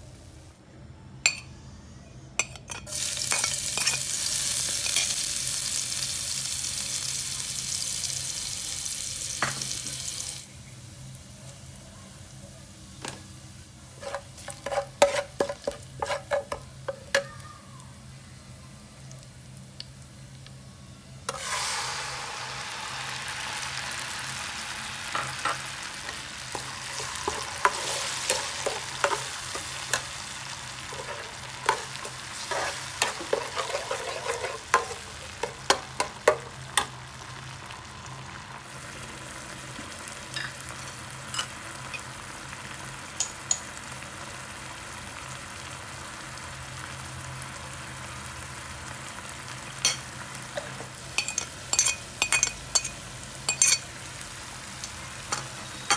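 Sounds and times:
food sizzling in hot oil: 2.6 - 20.4, 21.2 - 55.9
metal spatula scraping a pan: 14.0 - 16.6, 26.5 - 30.1, 30.8 - 35.1.

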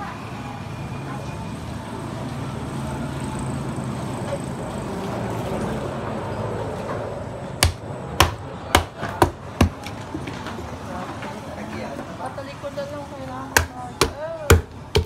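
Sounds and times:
knife chopping on wooden block: 7.6 - 9.9, 13.6 - 15.0.

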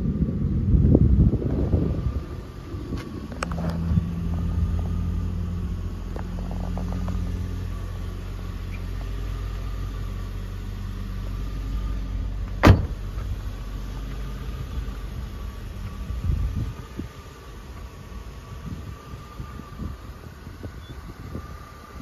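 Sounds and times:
car engine idling: 0.0 - 22.0
car door shutting: 12.4 - 13.4.

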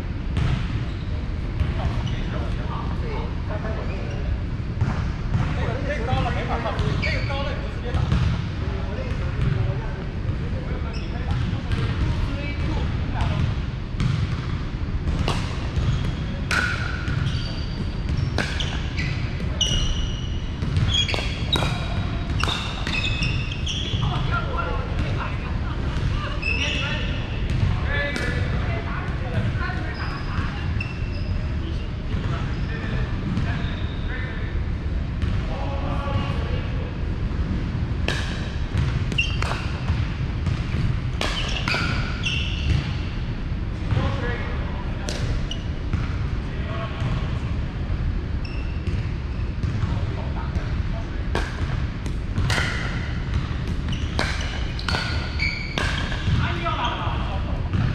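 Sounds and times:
sneakers squeaking on wood: 6.1 - 7.5, 10.9 - 11.4, 15.8 - 24.4, 26.1 - 27.7, 29.8 - 32.9, 38.8 - 40.6, 41.2 - 43.0, 48.4 - 49.8, 52.5 - 57.1
ball bouncing: 7.9 - 8.4, 11.3 - 24.4, 38.1 - 43.0, 51.3 - 56.5
paddles hitting ball: 38.0 - 42.9, 51.3 - 56.5.

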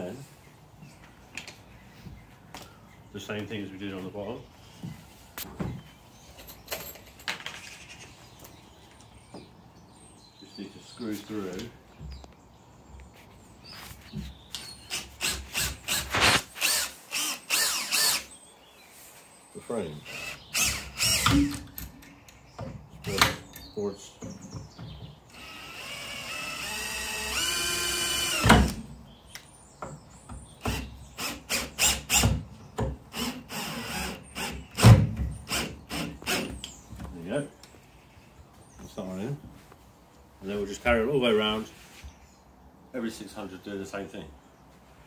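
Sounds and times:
cordless drill whining: 14.9 - 18.3, 20.0 - 21.6, 25.3 - 28.7, 33.1 - 34.8.

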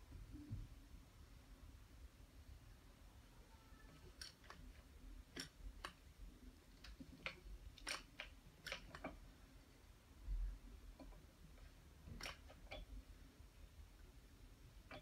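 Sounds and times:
light clicks of knitting machine: 6.7 - 9.2, 10.9 - 12.9.

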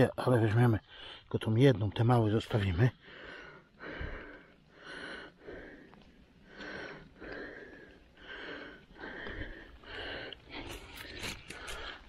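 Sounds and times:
man breathing heavily: 3.0 - 12.0.

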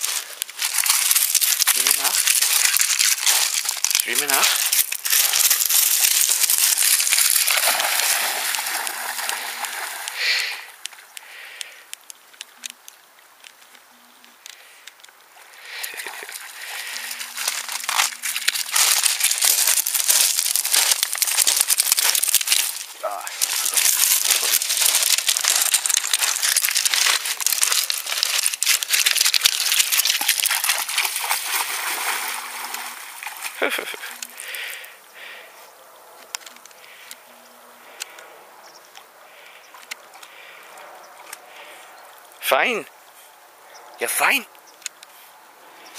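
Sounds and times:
pebbles crunching underfoot: 0.0 - 35.4
dog splashing through water: 0.1 - 10.2, 16.0 - 34.2
small clicks: 10.8 - 15.2.

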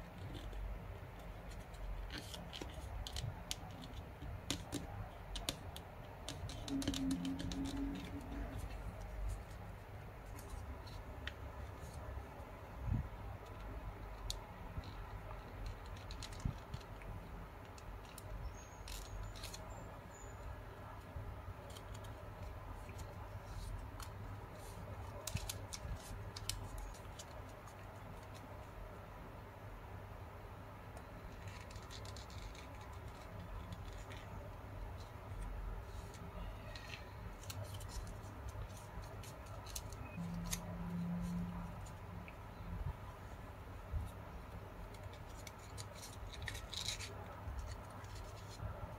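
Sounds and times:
low steady hum: 0.0 - 48.9
crisp paper clicks: 1.2 - 12.1, 13.5 - 19.8, 21.6 - 28.6, 44.8 - 48.9
paper rustling and crackling: 21.6 - 28.6.

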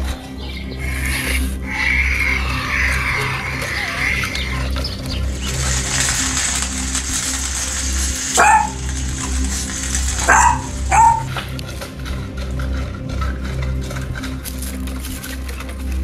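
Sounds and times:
background music: 0.0 - 16.0
dog barking: 8.3 - 11.6.

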